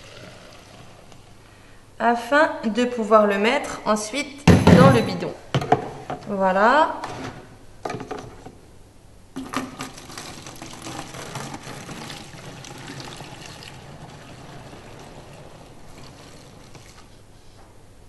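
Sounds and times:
liquid pouring into a bottle: 0.0s - 1.4s, 9.4s - 17.2s.

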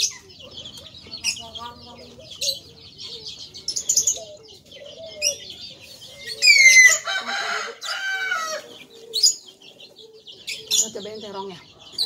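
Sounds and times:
high bird chirps: 0.0s - 12.0s
rooster crowing: 6.2s - 8.8s.

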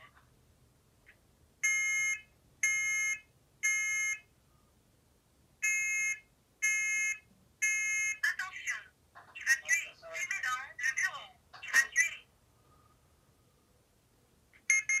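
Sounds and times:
smoke alarm shrill beeps: 1.6s - 4.2s, 5.6s - 8.2s, 14.7s - 15.0s.

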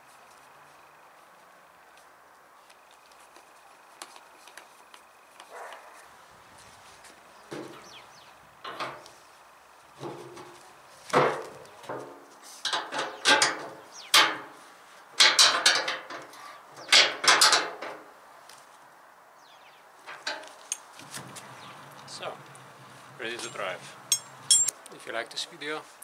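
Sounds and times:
metal clanks and rattles: 8.6s - 9.0s, 12.7s - 14.5s, 15.2s - 16.3s, 16.9s - 18.0s, 20.1s - 20.5s, 23.4s - 24.7s.

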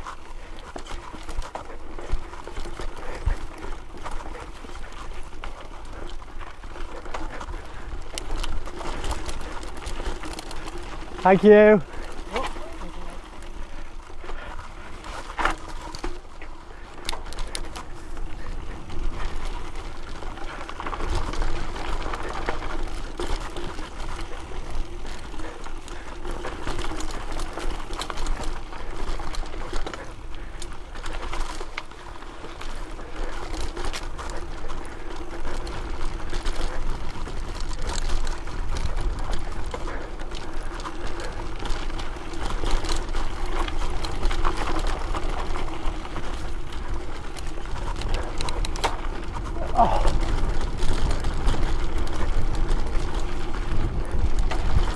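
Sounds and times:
bike rattling and clicking: 0.0s - 54.9s
bike tyres on dirt: 0.0s - 54.9s
wind rumbling on microphone: 16.6s - 54.9s.

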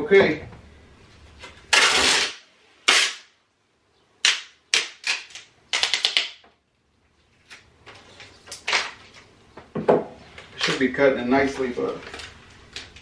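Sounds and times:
tape ripping off roll: 1.4s - 3.4s, 4.2s - 6.4s, 7.4s - 9.3s.

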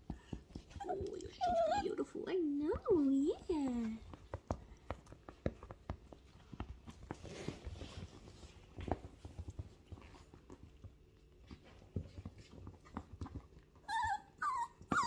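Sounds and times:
paws tapping on leather: 0.0s - 15.0s.

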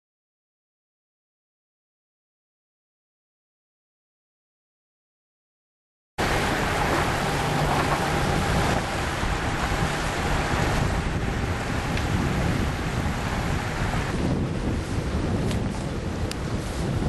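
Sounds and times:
sea water rushing along hull: 6.2s - 17.0s
wind buffeting microphone: 6.2s - 17.0s.

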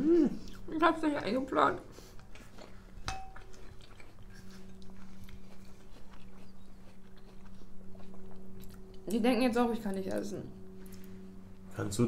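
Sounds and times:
steady low hum: 0.0s - 12.0s
soft chewing: 1.8s - 9.2s
spoon clinking on ceramic bowl: 3.0s - 3.6s.

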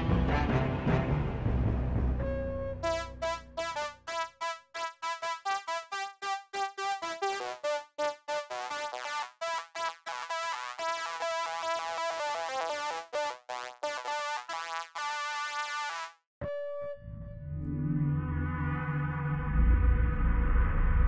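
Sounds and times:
synthesizer melody: 2.2s - 15.7s.

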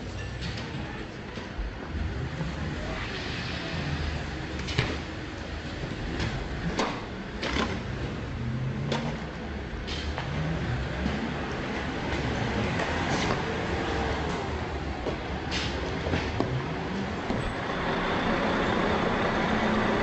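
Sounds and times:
objects banging on vehicle body: 6.2s - 7.9s
vehicle engine running: 9.1s - 20.0s.

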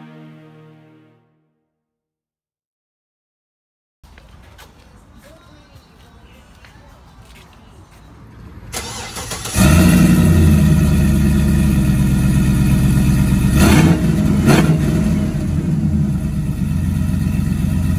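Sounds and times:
car engine starting and idling: 8.5s - 17.9s
engine throttle blips: 8.7s - 17.9s.

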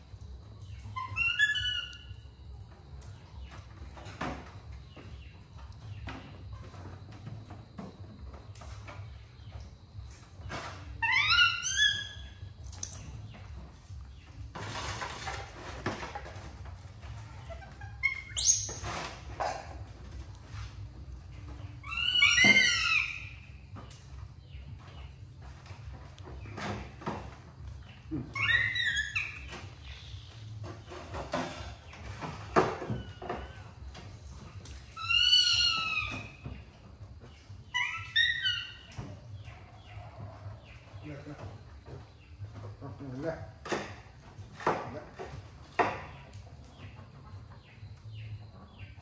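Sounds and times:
baby monkey squeak: 0.8s - 2.2s, 11.0s - 12.4s, 17.5s - 19.0s, 21.8s - 23.6s, 28.3s - 29.8s, 35.0s - 36.4s, 37.6s - 38.9s.

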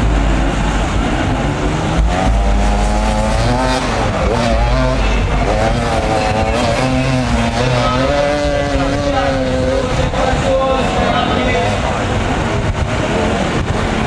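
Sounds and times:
dirt bike engines revving: 0.0s - 14.0s.

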